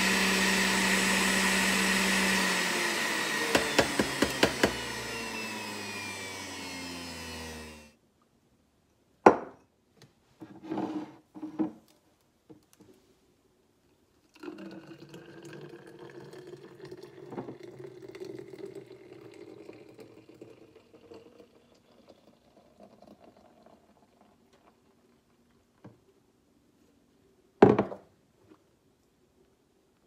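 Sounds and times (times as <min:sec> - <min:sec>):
juice pouring into bottle: 0:14.2 - 0:25.6.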